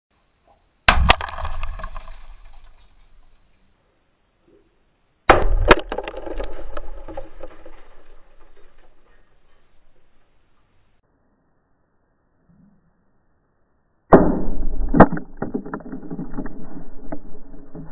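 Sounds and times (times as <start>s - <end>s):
windshield glass smashing: 0.9s - 3.4s.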